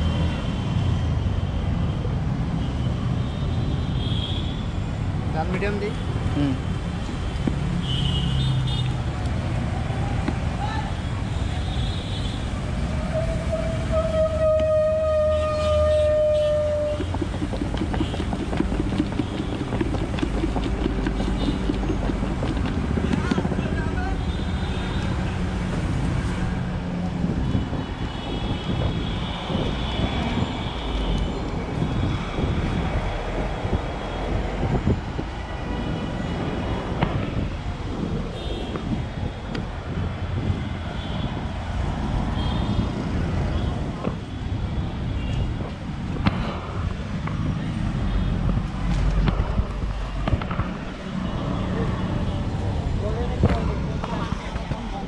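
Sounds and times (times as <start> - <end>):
low traffic rumble: 0.0 - 55.0
wind buffeting microphone: 14.4 - 51.0
plastic jar rattling when shaken: 16.8 - 23.6.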